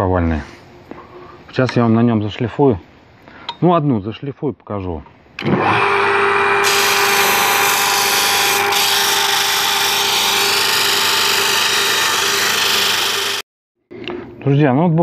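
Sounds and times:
sander motor whine: 0:05.4 - 0:13.4.

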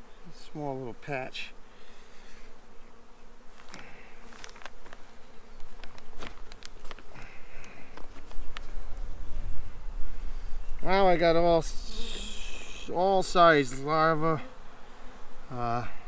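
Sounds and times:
bees humming: 0:00.0 - 0:16.0
clicks and knocks of hive tools: 0:03.6 - 0:05.0, 0:05.6 - 0:08.8.

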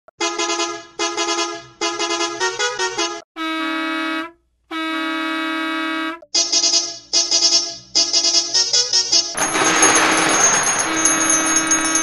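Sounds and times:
bus horn blasts: 0:00.2 - 0:07.0.

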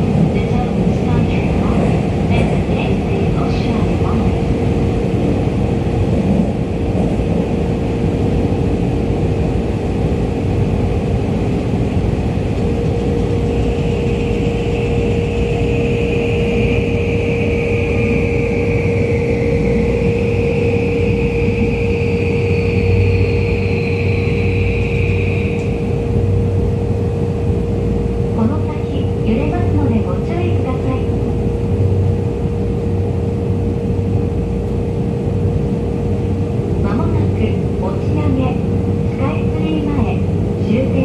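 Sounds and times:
constant hum: 0:00.0 - 0:41.0
wheels rumbling on rails: 0:00.0 - 0:41.0
high whine: 0:12.3 - 0:37.5.

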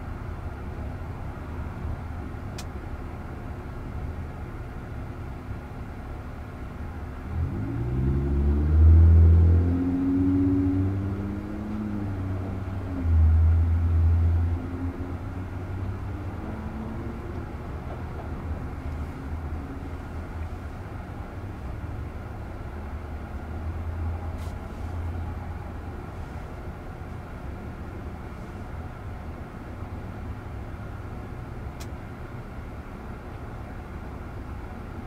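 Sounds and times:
low traffic rumble: 0:00.0 - 0:35.0
vehicle engine accelerating: 0:07.2 - 0:28.7.

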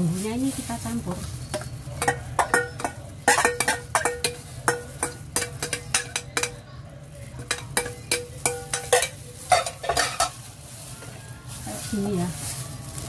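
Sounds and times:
steel bowl clinking against glass bowl: 0:01.3 - 0:10.5.

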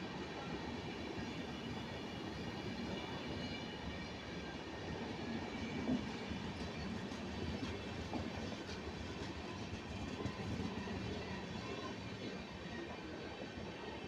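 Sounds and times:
train wheels rumbling on rails: 0:05.3 - 0:13.4.

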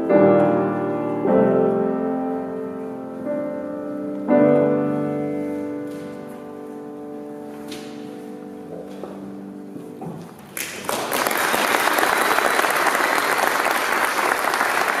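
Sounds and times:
piano chord ringing: 0:00.0 - 0:10.0
audience applause: 0:10.6 - 0:15.0.

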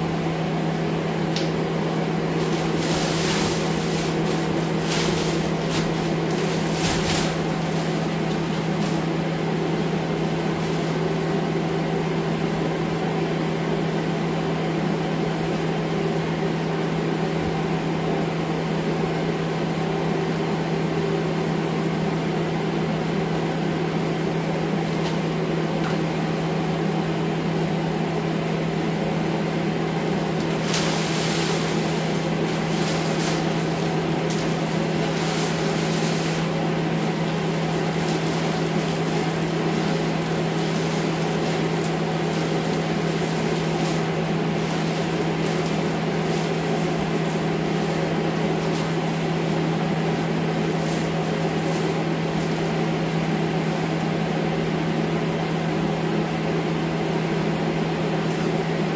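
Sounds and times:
air scrubber fan humming: 0:00.0 - 0:58.9
plastic sheeting crinkling: 0:02.3 - 0:11.2, 0:30.2 - 0:53.9.

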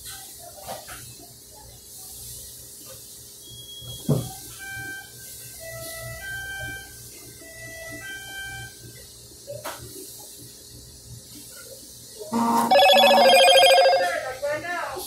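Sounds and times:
loud electronic ringing tone: 0:12.3 - 0:14.4
short electronic tune: 0:12.4 - 0:14.1.

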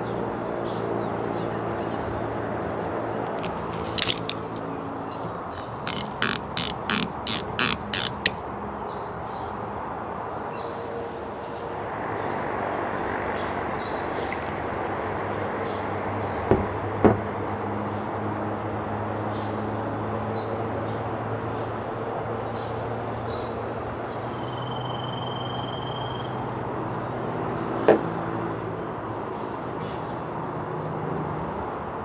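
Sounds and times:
glass bottle knocking on table: 0:16.5 - 0:17.3.

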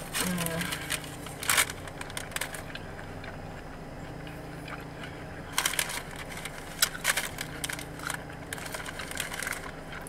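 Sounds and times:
car engine idling: 0:00.0 - 0:10.0
food wrapper crinkling: 0:00.1 - 0:02.8, 0:05.5 - 0:10.0.

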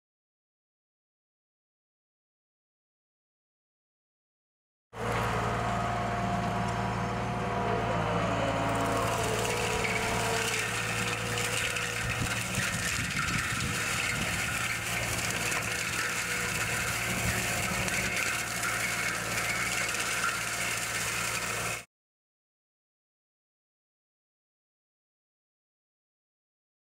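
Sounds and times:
loader engine running: 0:05.0 - 0:21.8
mulcher chipping wood: 0:07.7 - 0:21.8.

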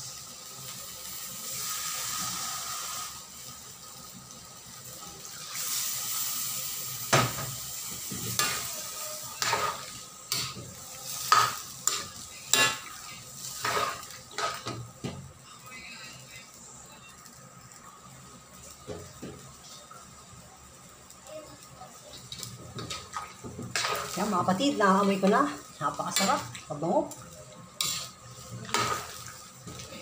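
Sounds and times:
meat sizzling in a wok: 0:00.0 - 0:30.0
spatula scraping a wok: 0:09.4 - 0:14.7, 0:27.8 - 0:30.0.

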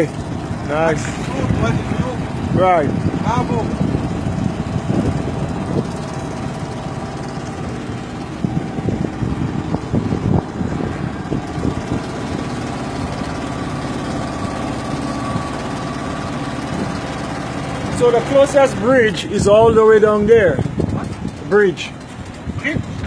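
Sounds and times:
motorboat engine running: 0:00.0 - 0:23.0.

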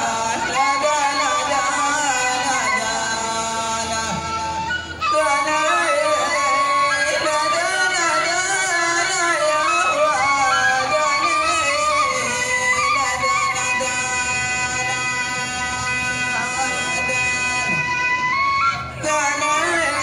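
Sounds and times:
man singing ornamented lines: 0:00.0 - 0:17.9, 0:19.0 - 0:20.0.

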